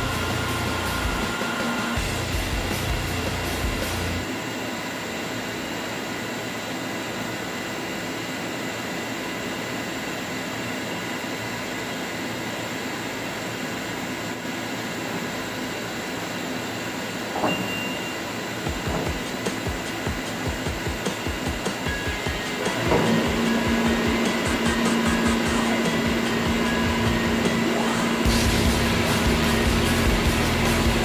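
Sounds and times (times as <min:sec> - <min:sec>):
machinery humming: 0:00.0 - 0:10.2, 0:10.8 - 0:31.0
brief high tone: 0:17.4 - 0:18.5.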